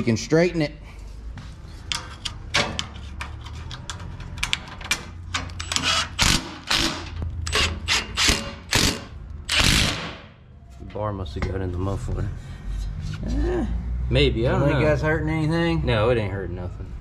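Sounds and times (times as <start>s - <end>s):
impact driver bursts: 5.7s - 10.3s.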